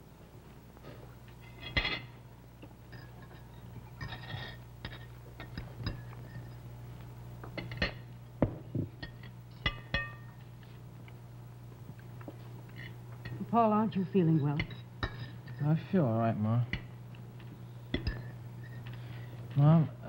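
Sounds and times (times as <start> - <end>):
cutlery clinking on plates: 17.9 - 18.9.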